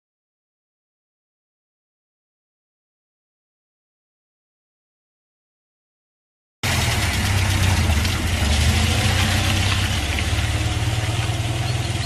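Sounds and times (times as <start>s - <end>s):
low engine hum: 6.6s - 12.0s.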